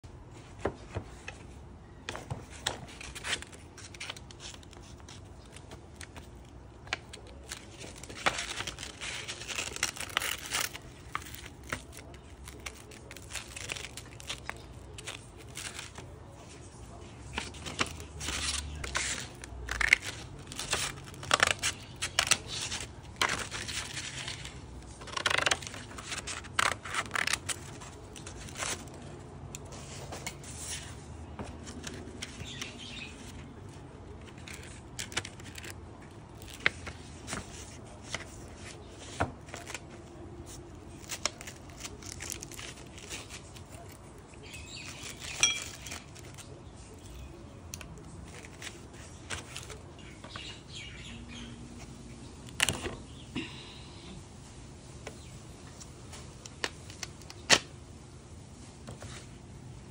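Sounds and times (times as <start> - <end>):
sandpaper crackling and ripping: 7.4 - 16.1.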